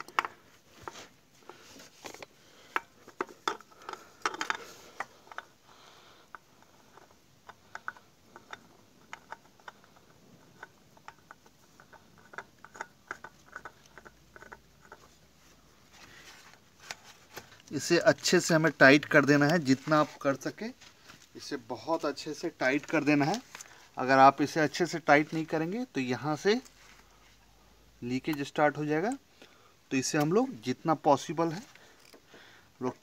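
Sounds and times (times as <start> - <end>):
oil filter clicks and scrapes: 6.3 - 15.2.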